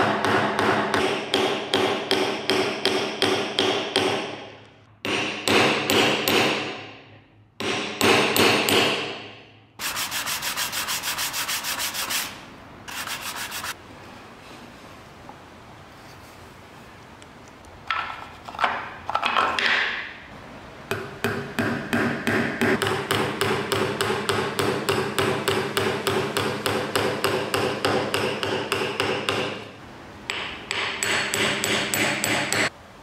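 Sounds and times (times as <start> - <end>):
wood-on-wood scrapes: 9.8 - 13.8.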